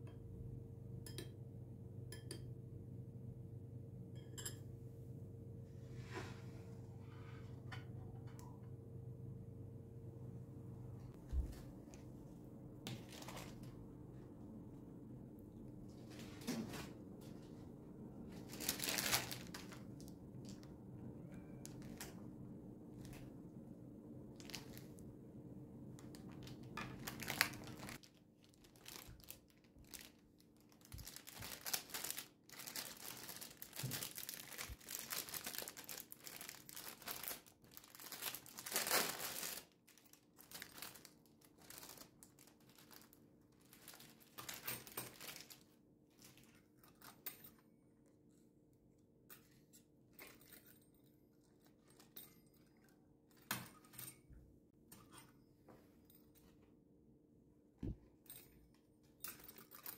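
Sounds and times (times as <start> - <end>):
packaging crinkling and tearing: 18.4 - 20.6, 24.4 - 25.0, 26.0 - 46.5.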